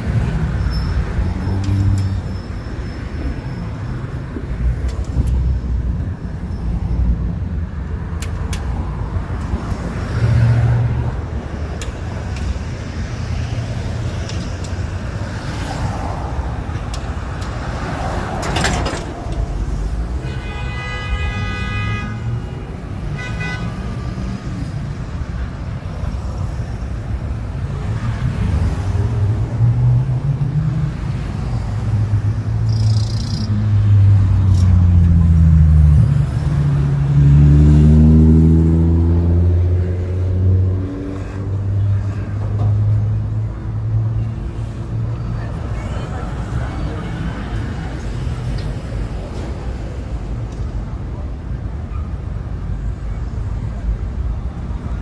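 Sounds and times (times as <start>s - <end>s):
rumble of passing vehicles: 0.0s - 55.0s
vehicle horn: 20.2s - 22.5s, 23.1s - 23.8s.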